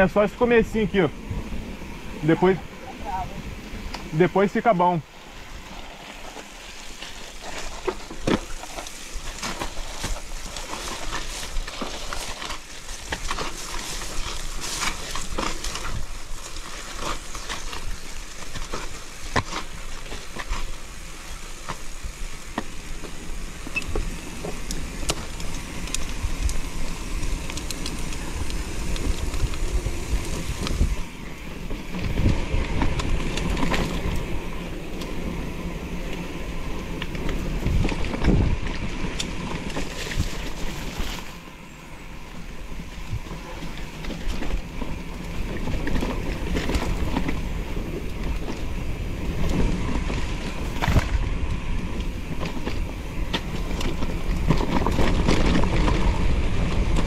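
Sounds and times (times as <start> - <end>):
bike rattling: 0.0 - 57.0
tyres crunching on dirt: 3.6 - 57.0
wind on microphone: 23.4 - 41.4.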